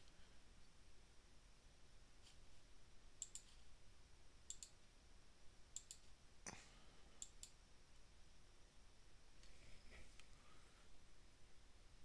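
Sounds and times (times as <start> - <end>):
computer mouse double-clicks: 3.2 - 3.6, 4.5 - 4.8, 5.8 - 6.1.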